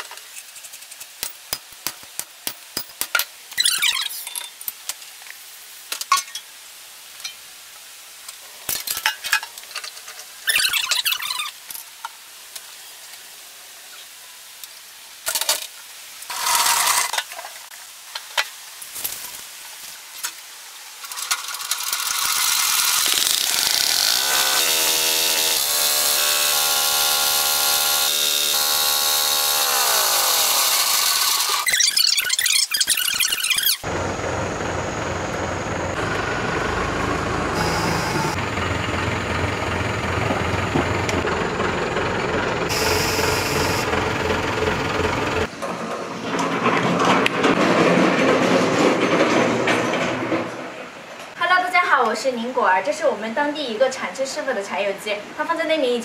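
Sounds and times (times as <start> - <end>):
diesel engine running: 33.9 - 45.5.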